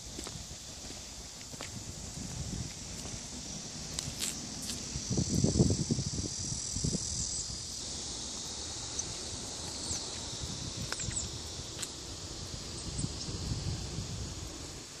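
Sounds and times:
insects shrilling: 0.0s - 15.0s
bird chirps: 11.0s - 11.4s.

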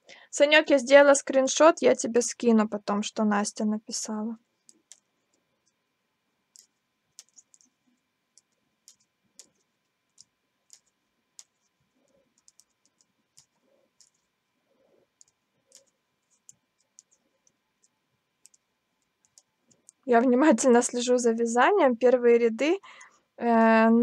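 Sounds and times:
knitting needles clicking: 4.6s - 5.8s, 6.5s - 14.3s, 15.2s - 20.1s.

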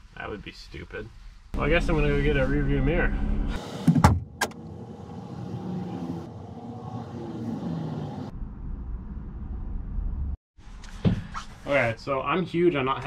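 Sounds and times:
traffic noise: 4.2s - 10.4s.

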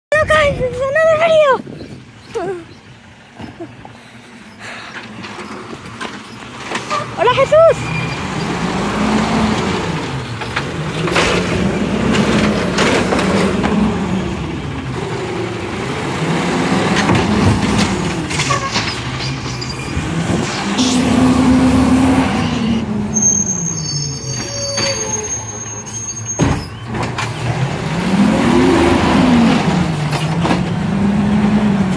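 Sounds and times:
garbage truck engine revving: 4.6s - 25.6s, 26.4s - 31.9s
clanks of cart and arm: 4.8s - 8.5s, 9.5s - 13.9s, 16.8s - 19.8s, 29.9s - 30.8s.

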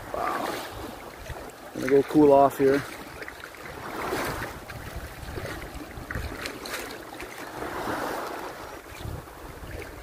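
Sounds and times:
seawater lapping: 0.0s - 10.0s
wind noise on microphone: 3.1s - 10.0s.

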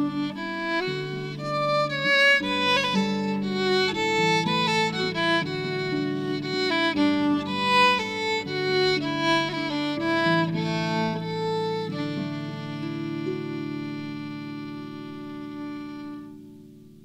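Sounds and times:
violin melody: 0.0s - 17.0s.

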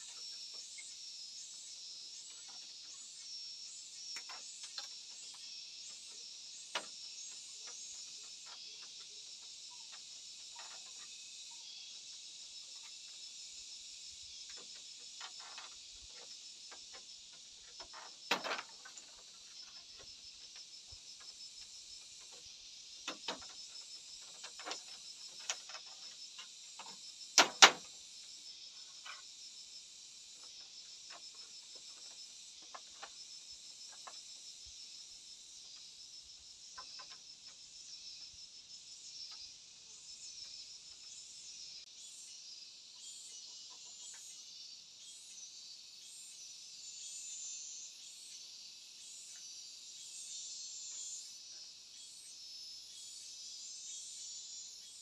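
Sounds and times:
insects chorus: 0.0s - 55.0s
knocks of bamboo battens: 17.9s - 19.1s, 27.4s - 27.9s.

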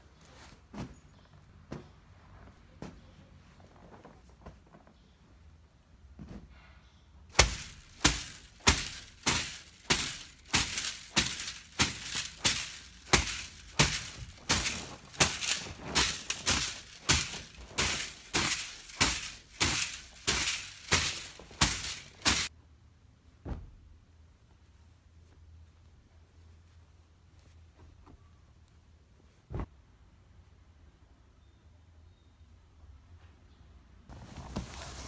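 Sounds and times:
broom sweeping and slapping mattress: 7.4s - 22.5s, 34.1s - 35.0s.

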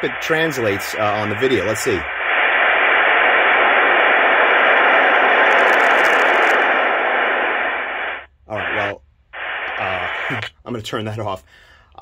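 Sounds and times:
loud speaker hiss: 0.0s - 2.6s, 8.5s - 10.6s.

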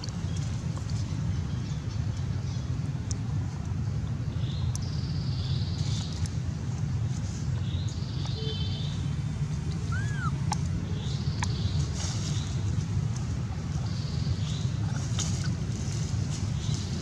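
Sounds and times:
birds chirping: 0.0s - 17.0s
rising and falling call: 9.8s - 10.6s.

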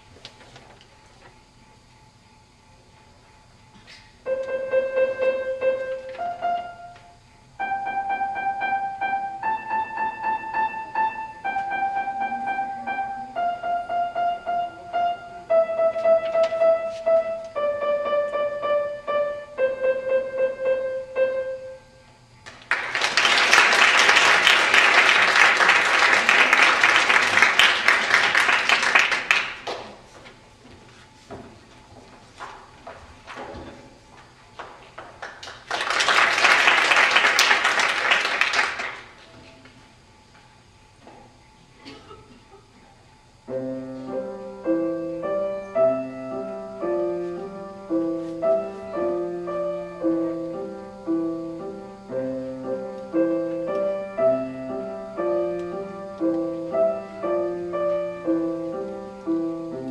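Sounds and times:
simple piano melody: 4.3s - 21.9s, 43.5s - 59.9s
audience applauding: 22.5s - 29.9s, 34.6s - 39.2s.

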